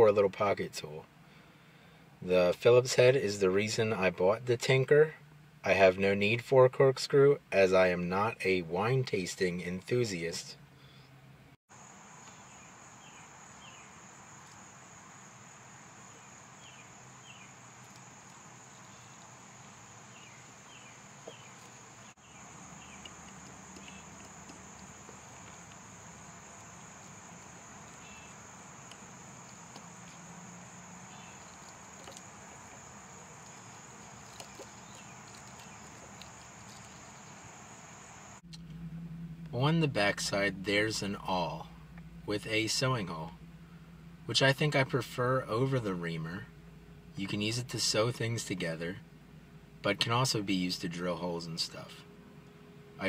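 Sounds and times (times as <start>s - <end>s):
high-pitched insect drone: 11.8s - 39.4s.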